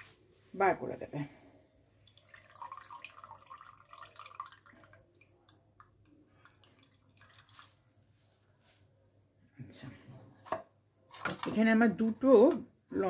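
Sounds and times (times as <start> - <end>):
water dripping into bowl: 2.0 - 7.8.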